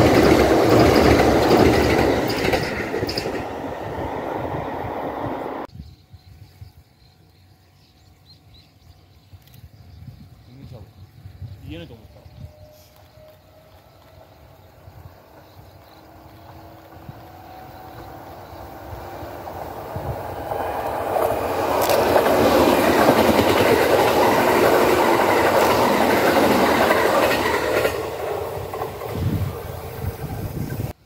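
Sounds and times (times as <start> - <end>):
train wheels clacking on rail joints: 0.0 - 3.9, 19.9 - 29.4
electric train running past: 0.0 - 5.7, 10.8 - 31.0.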